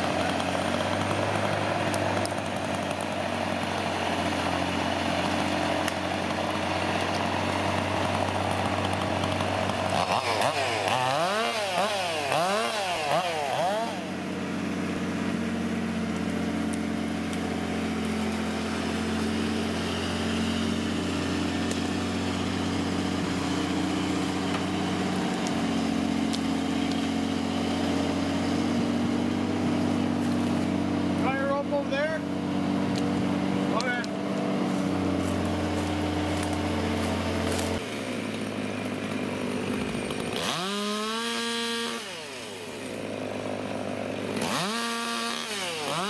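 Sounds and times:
chainsaw revving: 0.0 - 46.0
truck engine droning: 0.0 - 46.0.

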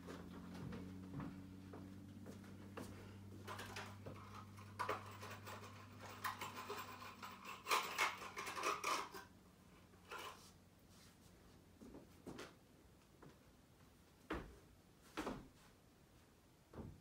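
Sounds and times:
low steady hum: 0.0 - 17.0
small objects clicking and rattling: 3.5 - 9.3.

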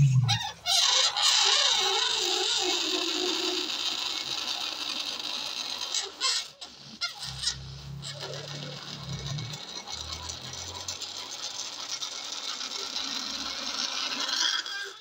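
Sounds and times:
balloon deflating squeal: 0.0 - 10.0, 12.8 - 15.0.

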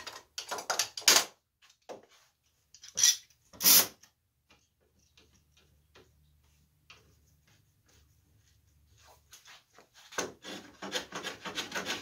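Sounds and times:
tool scraping on wood: 9.4 - 12.0.

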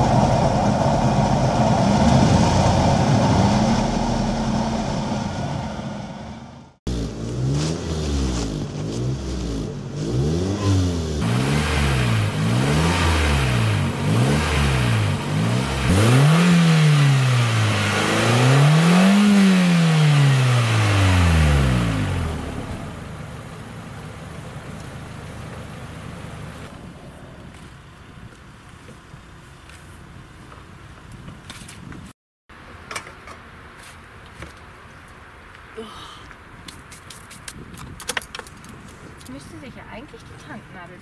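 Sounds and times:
petrol engine revving: 0.0 - 28.9.

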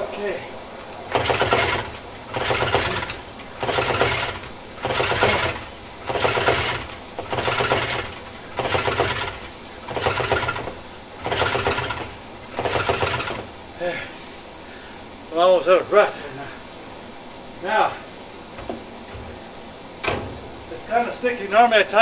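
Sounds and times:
engine turned over by hand clattering: 1.1 - 13.5.

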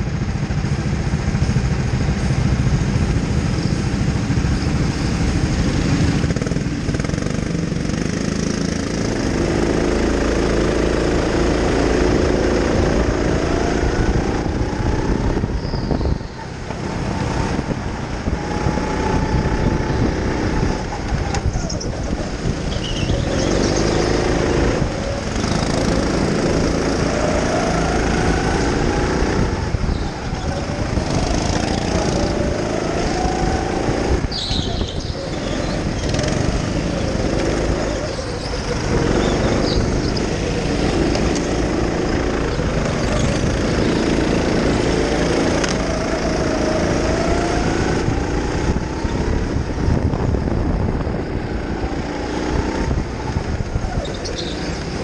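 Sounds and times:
kart rumble and rattle: 0.0 - 55.0
go-kart motor revving: 2.2 - 55.0.

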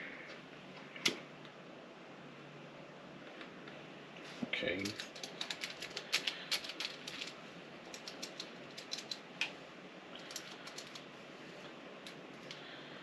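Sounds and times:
mechanical keyboard typing: 4.8 - 7.3, 7.9 - 9.2, 10.2 - 11.0.

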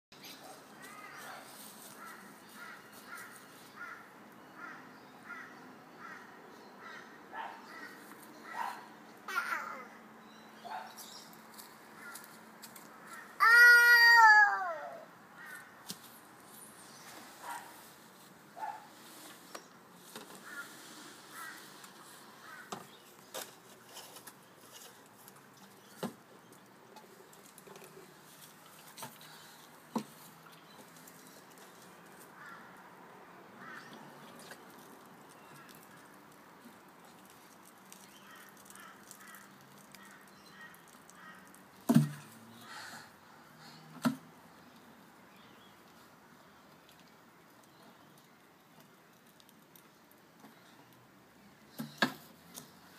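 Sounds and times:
faint high calls: 13.1 - 15.6.

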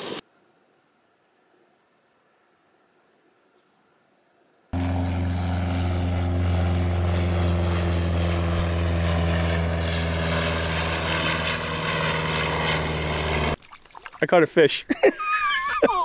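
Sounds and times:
propeller airplane flying overhead: 4.8 - 13.6.

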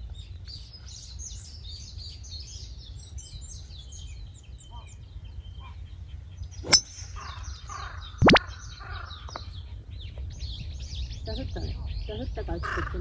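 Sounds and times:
small birds chirping: 0.0 - 13.0
golf club striking ball: 6.6 - 7.4.

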